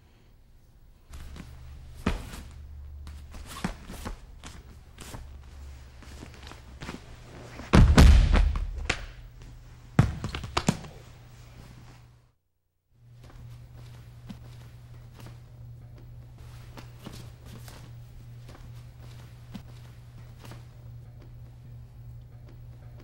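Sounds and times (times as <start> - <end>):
steady low hum: 0.0 - 23.0
bodies thudding on mat: 1.1 - 4.6, 6.1 - 8.9.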